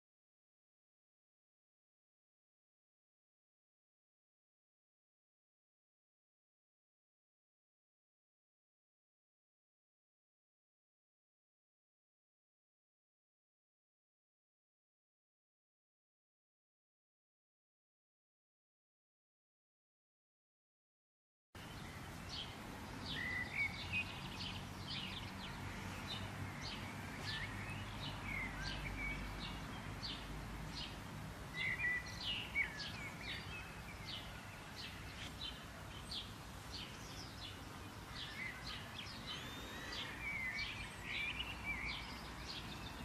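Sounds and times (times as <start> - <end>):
outdoor background hiss: 21.6 - 43.0
small birds chirping: 21.6 - 43.0.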